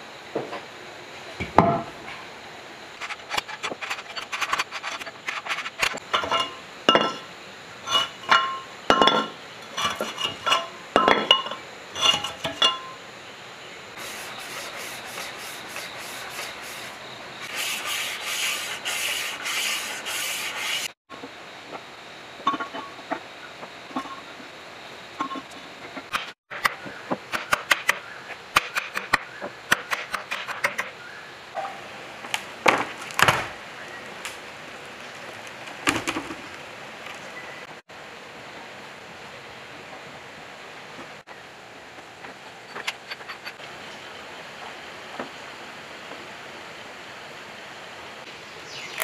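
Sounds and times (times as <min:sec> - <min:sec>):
scratchy rubbing on metal: 0:14.0 - 0:21.0.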